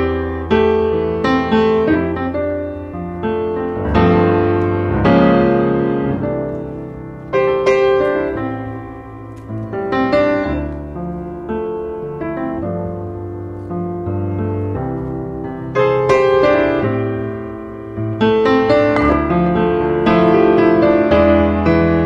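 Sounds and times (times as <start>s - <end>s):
background piano music: 0.0s - 22.0s.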